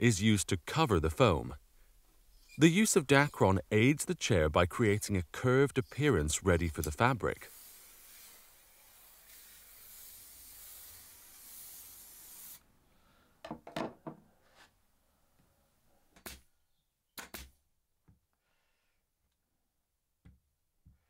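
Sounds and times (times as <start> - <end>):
aerosol spray can hissing: 7.4 - 12.6.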